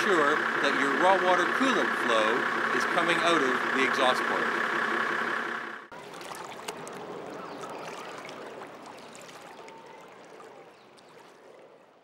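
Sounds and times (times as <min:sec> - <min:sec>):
water lapping on pebbles: 0:05.9 - 0:12.0
small clicks and splashes: 0:06.0 - 0:11.8.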